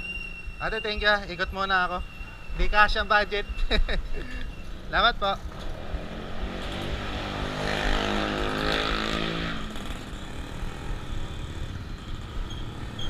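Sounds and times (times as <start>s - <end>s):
motor vehicle passing: 5.4s - 13.0s.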